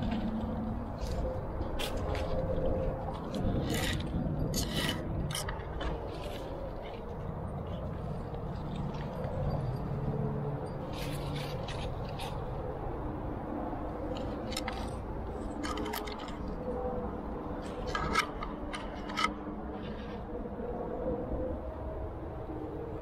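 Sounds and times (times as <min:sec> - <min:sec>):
carabiners clinking and scraping: 0:00.0 - 0:12.7, 0:14.0 - 0:20.3.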